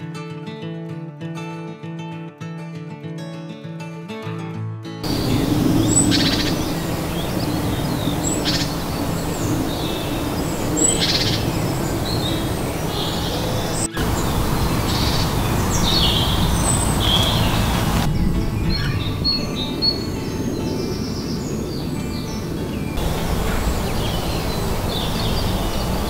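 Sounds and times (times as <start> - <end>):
birds trilling: 5.0 - 26.0
low background hiss: 5.1 - 18.5, 22.2 - 26.0.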